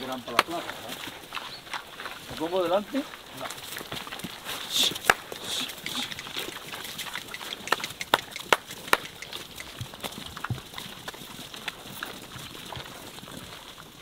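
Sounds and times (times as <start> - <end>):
sharp cracks: 4.7 - 10.1.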